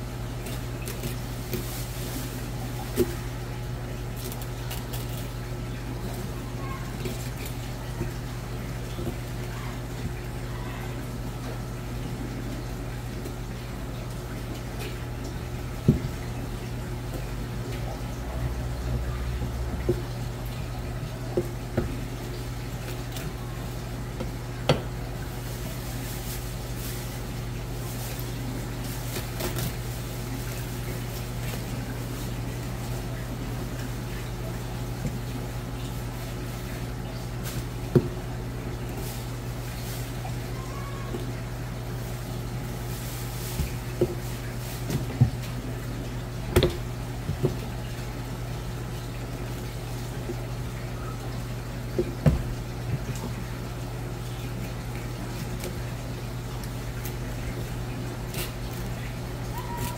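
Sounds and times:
low machine hum: 0:00.0 - 0:59.9
knocks on cutting board: 0:52.0 - 0:52.5.

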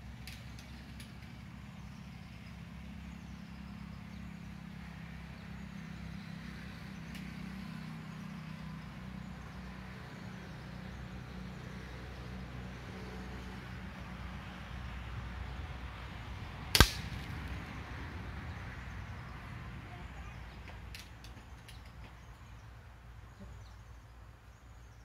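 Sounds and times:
low engine-like hum: 0:00.0 - 0:25.0.

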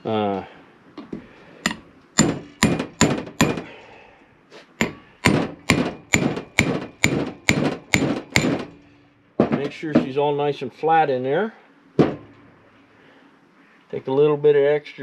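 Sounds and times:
hammer striking metal: 0:01.6 - 0:03.7, 0:04.8 - 0:10.1.

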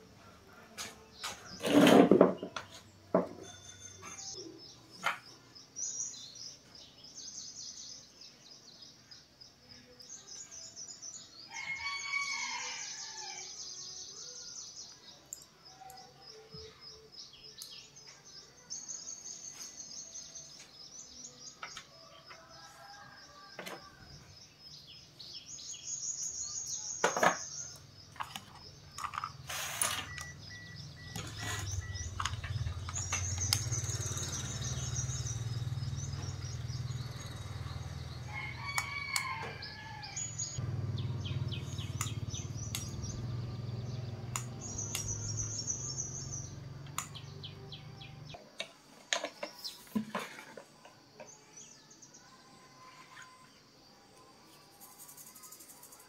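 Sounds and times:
birds chirping and trilling: 0:00.0 - 0:56.0
sharp clicks: 0:42.0 - 0:43.1, 0:44.3 - 0:45.2.

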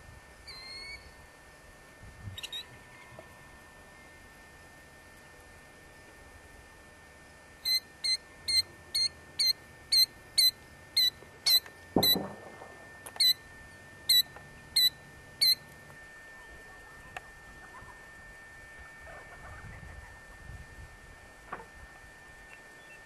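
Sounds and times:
killdeer alarm calls: 0:00.4 - 0:01.1, 0:02.3 - 0:02.8, 0:07.6 - 0:12.2, 0:13.2 - 0:13.4, 0:14.0 - 0:15.6
thump with low rumble: 0:12.0 - 0:12.8.

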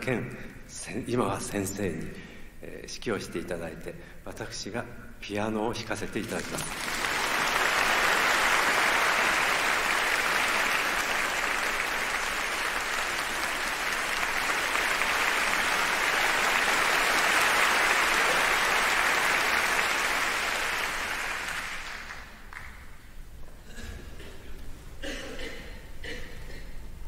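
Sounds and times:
audience applauding: 0:06.2 - 0:23.0.

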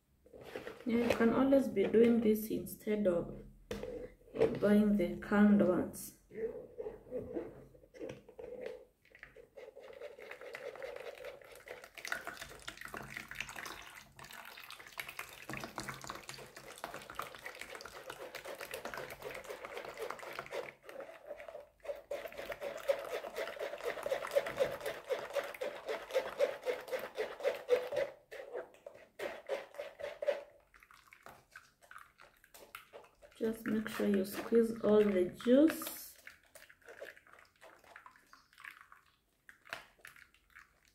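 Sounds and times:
wet liquid sounds: 0:06.2 - 0:40.9
metal spoon scraping in strainer: 0:20.9 - 0:30.5.

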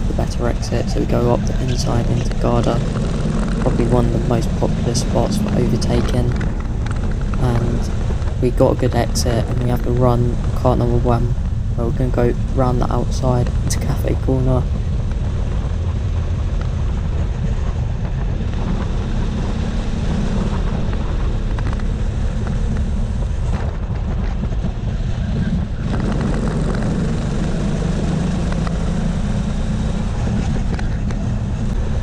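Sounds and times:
go-kart engine running hard: 0:00.0 - 0:32.0
wind buffeting microphone: 0:00.0 - 0:32.0.

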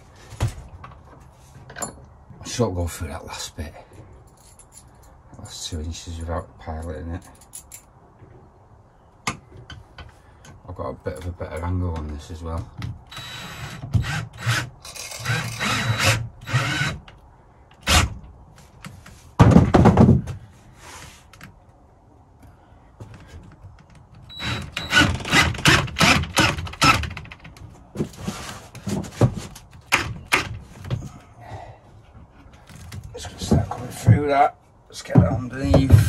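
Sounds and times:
drill driving screw into wood: 0:13.1 - 0:17.1, 0:17.8 - 0:18.2, 0:24.3 - 0:27.3
knocks and heavy thump: 0:19.4 - 0:20.5, 0:35.1 - 0:36.0.

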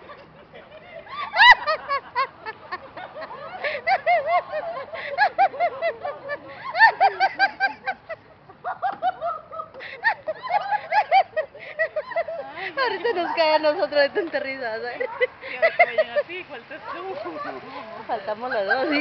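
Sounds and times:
high-pitched laughter: 0:00.0 - 0:13.4.

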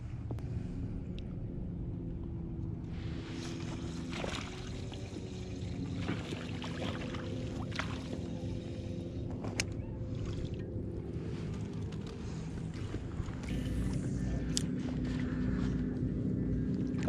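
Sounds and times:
steady low hum: 0:00.0 - 0:17.0
water splashing against kayak hull: 0:03.4 - 0:08.6.

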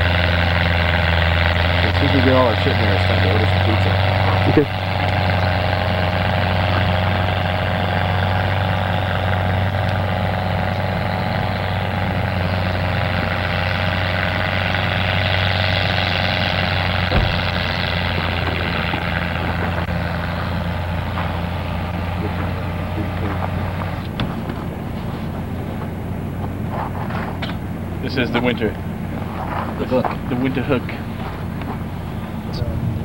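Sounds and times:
vehicle engine running: 0:00.0 - 0:33.0
knock: 0:17.1 - 0:17.6.

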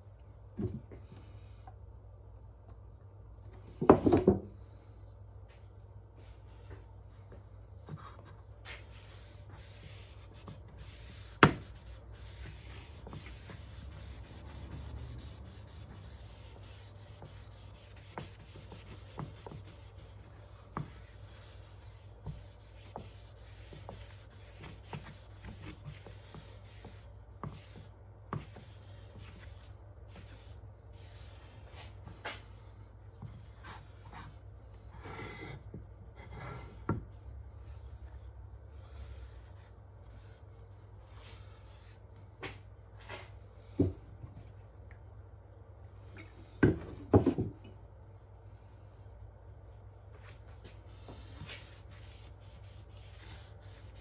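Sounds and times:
cloth rag rubbing wood: 0:08.6 - 0:32.5, 0:50.2 - 0:54.0.

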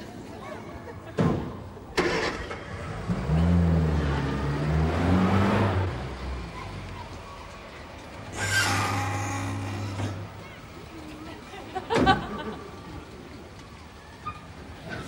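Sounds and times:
car engine revving: 0:02.0 - 0:06.6.

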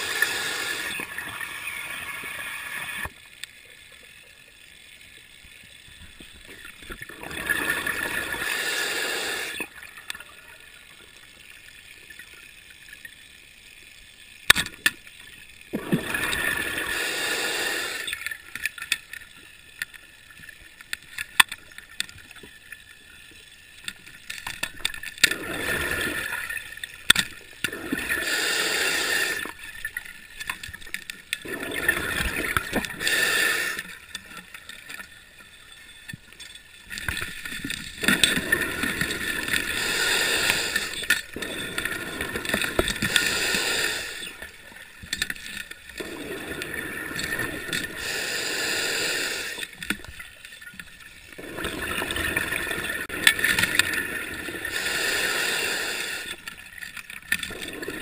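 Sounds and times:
underwater breathing bubbles: 0:00.0 - 0:03.1, 0:06.6 - 0:10.7, 0:15.7 - 0:18.3, 0:25.1 - 0:29.7, 0:31.4 - 0:34.6, 0:37.0 - 0:50.3, 0:51.3 - 0:56.6, 0:57.4 - 0:58.0.

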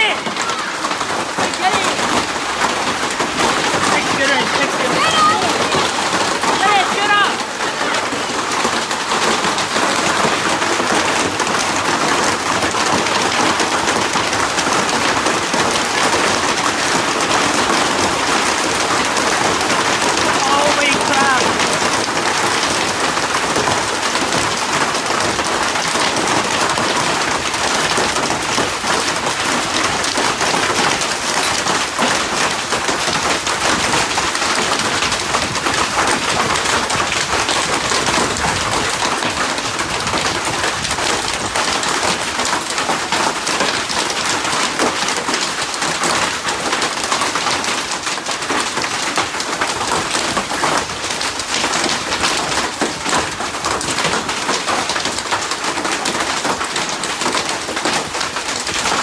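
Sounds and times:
heavy rain and hail pattering: 0:00.0 - 0:59.0.

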